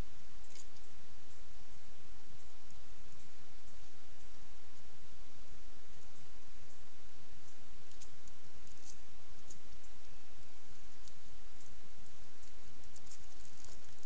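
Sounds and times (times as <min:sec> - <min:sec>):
microphone hiss: 0:00.0 - 0:14.0.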